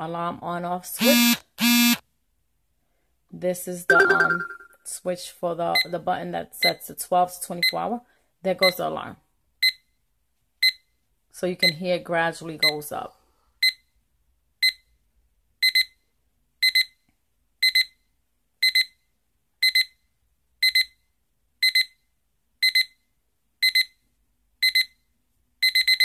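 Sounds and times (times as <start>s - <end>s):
alarm clock beeping: 1.0s - 2.0s, 3.9s - 4.8s, 25.6s - 26.0s.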